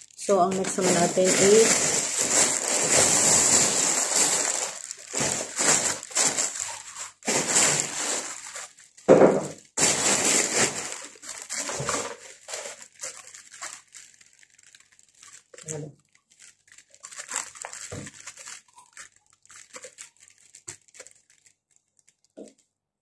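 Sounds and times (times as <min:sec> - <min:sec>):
plastic bag rustling: 0:00.0 - 0:22.6.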